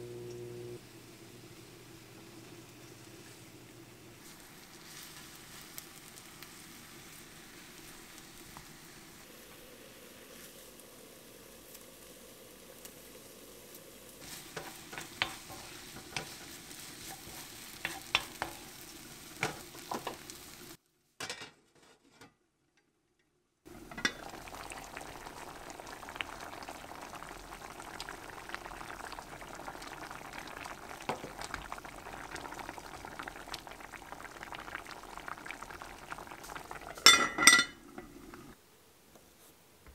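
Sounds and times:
soup bubbling in a pot: 0:00.0 - 0:20.8, 0:23.7 - 0:38.6
meat sizzling in a pan: 0:00.9 - 0:20.8, 0:23.7 - 0:38.5
wooden spoon stirring: 0:14.2 - 0:18.7.

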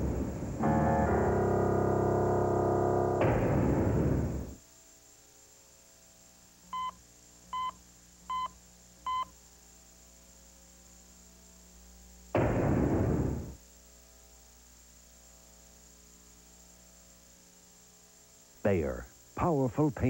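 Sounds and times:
loud noise burst: 0:00.0 - 0:04.6, 0:12.3 - 0:13.6
heart monitor beeps: 0:06.7 - 0:09.3.

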